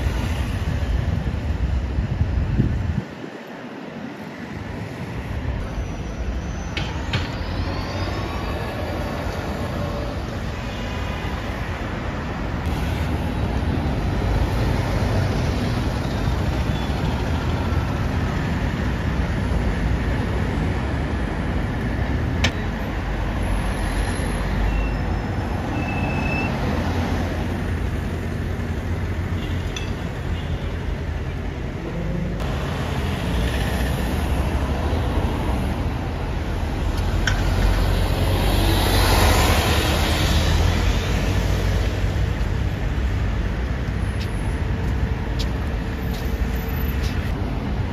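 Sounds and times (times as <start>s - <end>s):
road traffic passing: 0.0s - 47.9s
brief high squeals: 5.6s - 9.2s.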